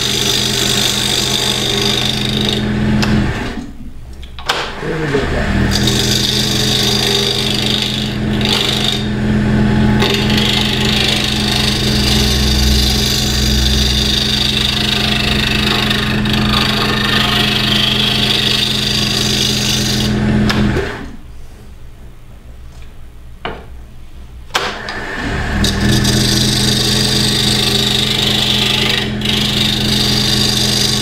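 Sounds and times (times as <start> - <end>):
scraper shaving wood: 0.0 - 2.8, 4.8 - 20.4, 25.8 - 31.0
wood lathe humming: 0.0 - 3.6, 4.5 - 21.1, 24.8 - 31.0.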